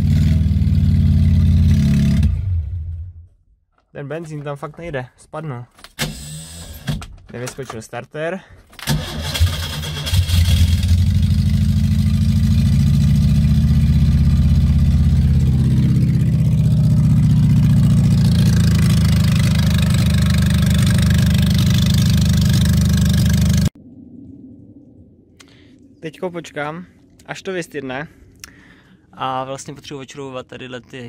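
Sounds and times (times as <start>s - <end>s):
car engine starting and running loud: 0.0s - 3.2s, 8.8s - 23.8s.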